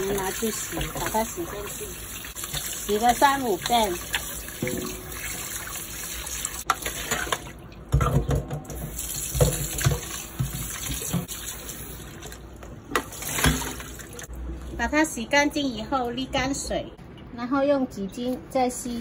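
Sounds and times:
faucet running into sink: 0:00.0 - 0:14.3
water splashing into colander: 0:00.0 - 0:14.9.

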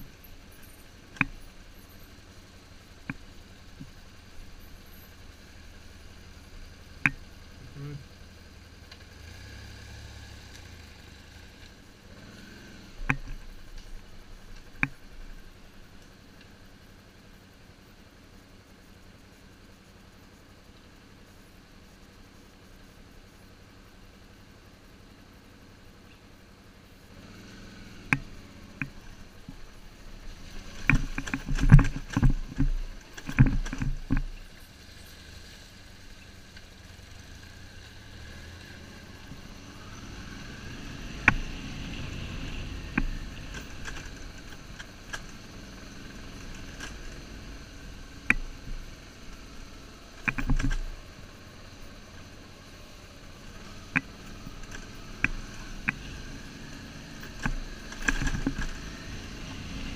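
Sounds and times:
motorcycle engine on dirt track: 0:00.0 - 0:21.2, 0:26.9 - 0:59.9
knocks and clatters from stones: 0:30.6 - 0:34.4, 0:50.2 - 0:50.9, 0:57.3 - 0:58.9.

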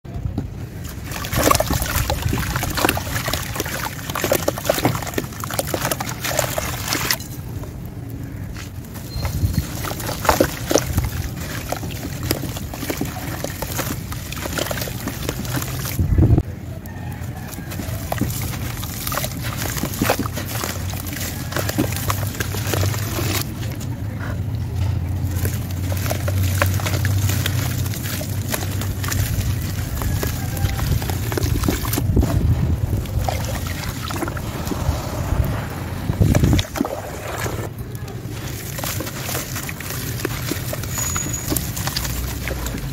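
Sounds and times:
wet crackling and crumbling: 0:00.6 - 0:42.9
bits splashing into water: 0:00.8 - 0:16.1, 0:17.1 - 0:23.7, 0:25.2 - 0:42.9
crushing gritty chunks by hand: 0:00.8 - 0:16.1, 0:17.1 - 0:23.9, 0:25.2 - 0:42.9
powder pouring hiss: 0:34.3 - 0:36.2.

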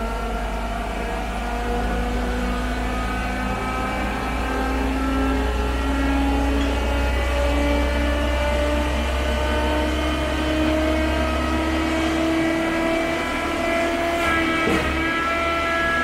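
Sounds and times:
pump motor humming and whining: 0:00.0 - 0:16.0.

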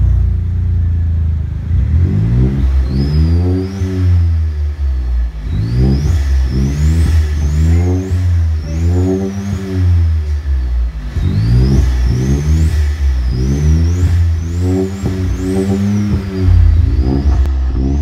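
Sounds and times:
car engine idling and revving: 0:00.0 - 0:18.0
faint high turbo whistle: 0:13.1 - 0:17.5.

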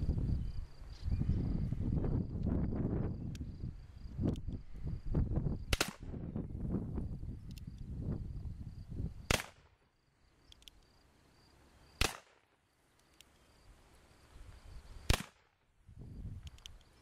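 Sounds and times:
faint clicks: 0:03.2 - 0:03.5, 0:04.2 - 0:04.7, 0:07.4 - 0:07.9, 0:10.5 - 0:10.9, 0:12.9 - 0:13.5, 0:16.4 - 0:17.0.

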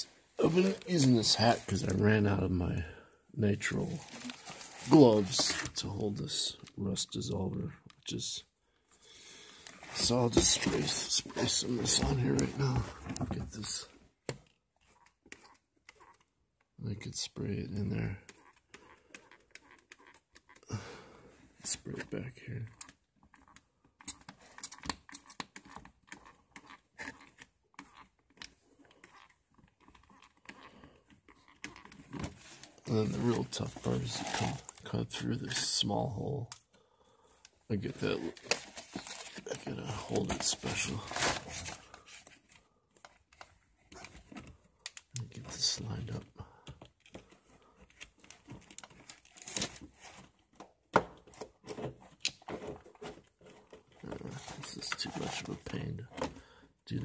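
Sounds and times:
rustling: 0:03.8 - 0:05.8, 0:28.8 - 0:35.0, 0:37.8 - 0:44.6.

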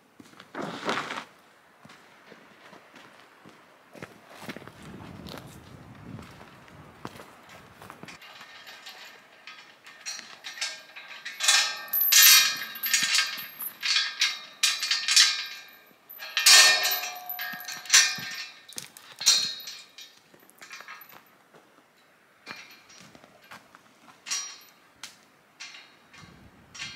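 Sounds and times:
hollow gate tubes ringing: 0:08.1 - 0:21.2, 0:24.2 - 0:24.8
chain rattling against metal gates: 0:08.1 - 0:21.3, 0:22.4 - 0:23.6, 0:24.2 - 0:24.8, 0:25.6 - 0:26.9.

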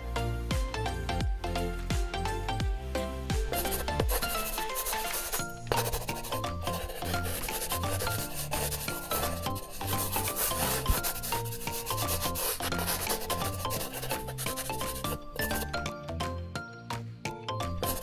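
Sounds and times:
background music with bass line: 0:00.0 - 0:18.0
marker scratching on paper: 0:03.5 - 0:15.7, 0:17.8 - 0:18.0.

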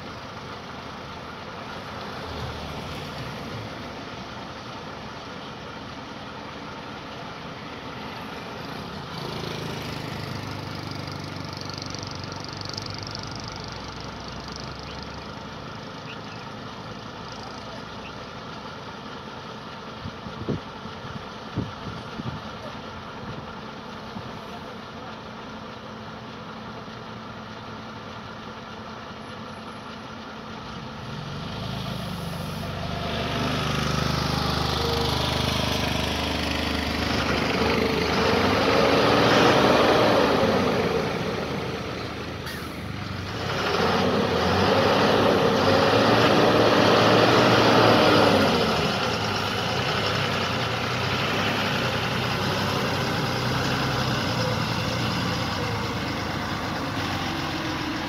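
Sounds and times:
heavy truck diesel engine: 0:00.0 - 0:58.0.

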